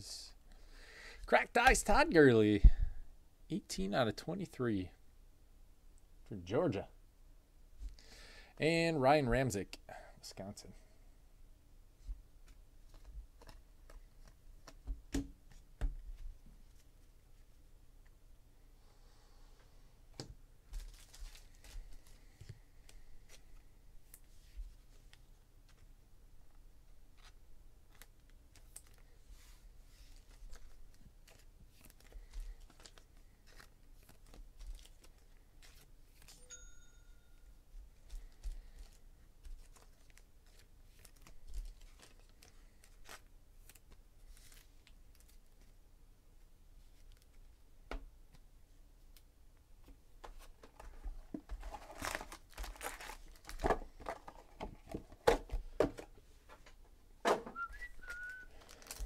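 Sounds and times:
foil packs crinkling: 0:38.2 - 0:45.5, 0:51.6 - 0:54.5, 0:57.8 - 0:59.0.

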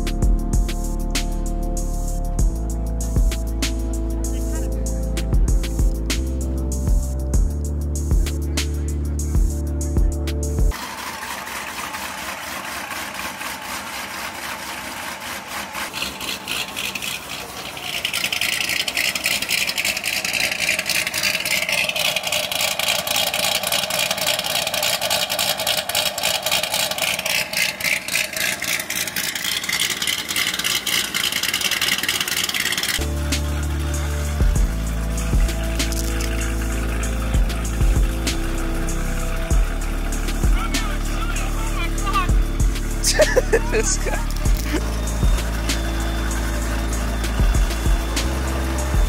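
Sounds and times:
car engine idling: 0:00.0 - 0:49.0.

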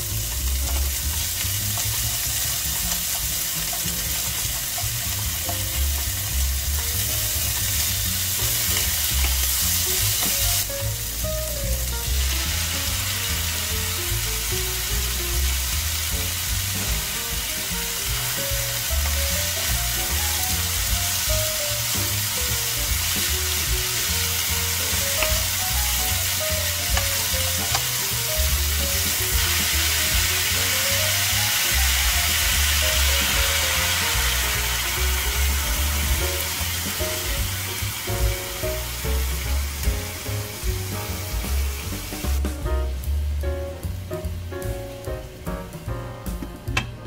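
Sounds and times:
food sizzling in frying pan: 0:00.0 - 0:45.8
melodic background music: 0:00.1 - 0:47.0.

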